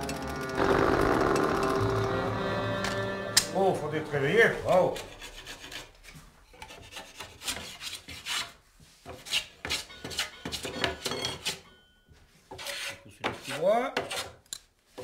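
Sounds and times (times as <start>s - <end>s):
scraping and rubbing on wood: 4.7s - 10.6s, 12.5s - 14.4s.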